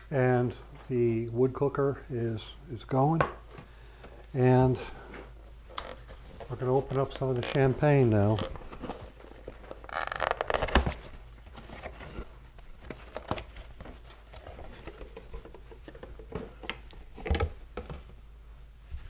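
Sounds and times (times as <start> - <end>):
cardboard box rustling: 5.9 - 18.1.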